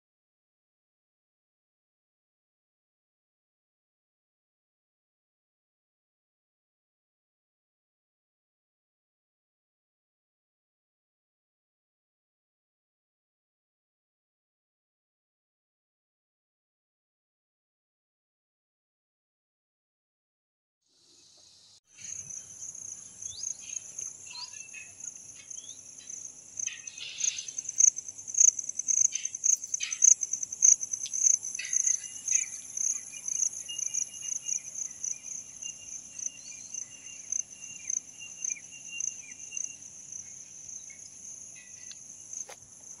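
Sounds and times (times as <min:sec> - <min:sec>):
insects chirping: 0:20.9 - 0:43.0.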